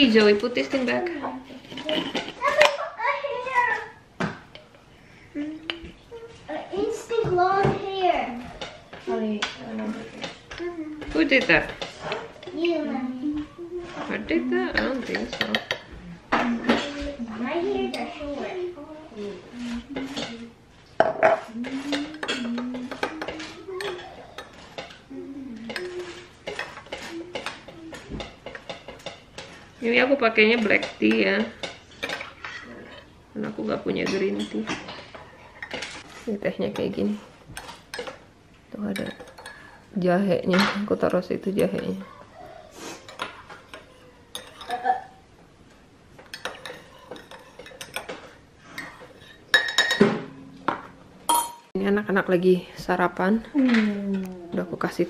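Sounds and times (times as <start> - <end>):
dishes and cutlery clinking: 0.0 - 2.8, 7.2 - 12.7, 13.3 - 18.6, 19.2 - 39.8, 43.0 - 45.2, 46.1 - 51.8.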